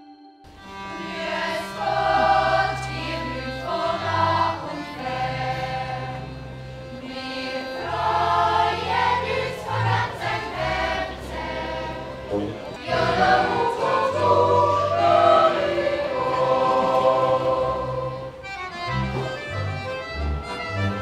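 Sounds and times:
choir singing in held chords: 0:00.5 - 0:18.7.

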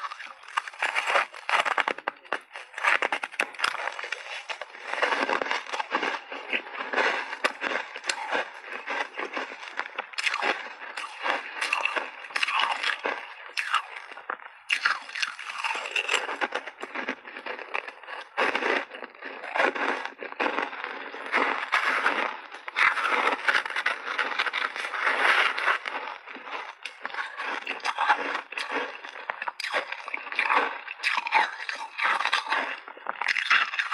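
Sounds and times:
crunching and chewing shaved ice: 0:00.0 - 0:33.9.

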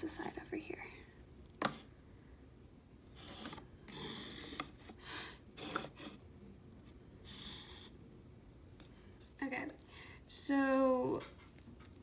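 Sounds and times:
plastic trays scraping and rustling: 0:03.1 - 0:05.0.

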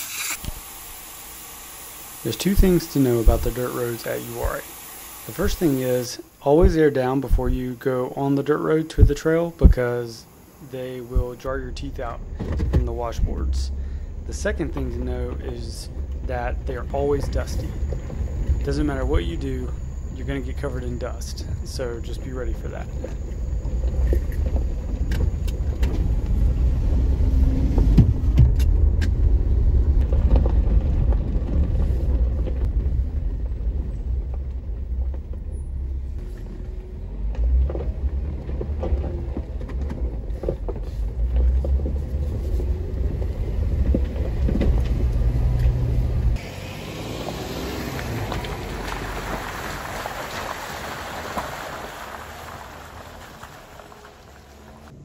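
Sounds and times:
engine and tyres rumbling: 0:00.0 - 0:55.0
tyres splashing through mud: 0:37.2 - 0:55.0.

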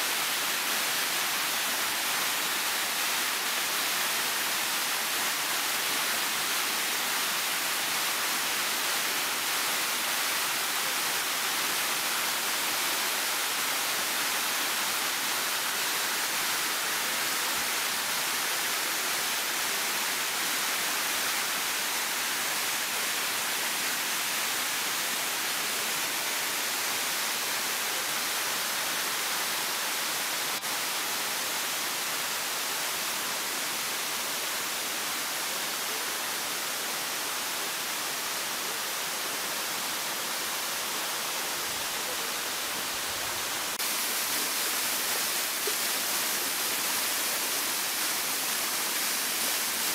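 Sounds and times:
stream rushing over rock: 0:00.0 - 0:49.9.

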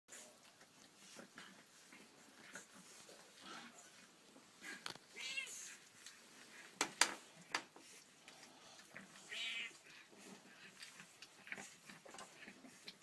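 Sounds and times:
cat meowing: 0:05.2 - 0:05.7, 0:09.3 - 0:09.8.

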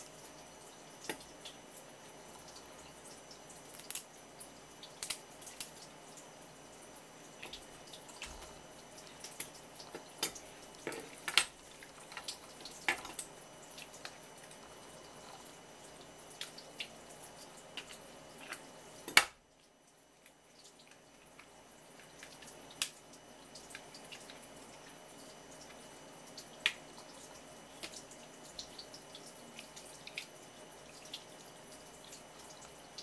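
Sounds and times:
tap water running and splashing: 0:00.0 - 0:33.0
crab shell clicking: 0:03.7 - 0:04.1, 0:05.0 - 0:05.8.

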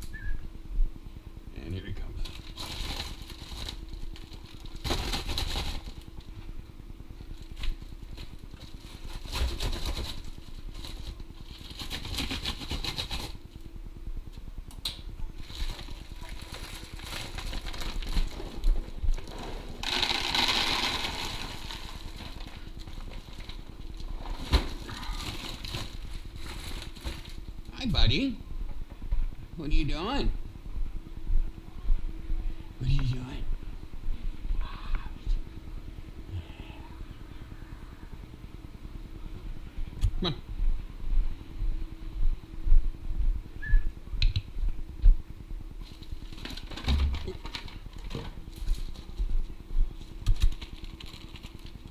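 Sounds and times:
plastic bag crinkling: 0:02.2 - 0:06.1, 0:15.4 - 0:27.7, 0:50.1 - 0:51.9.

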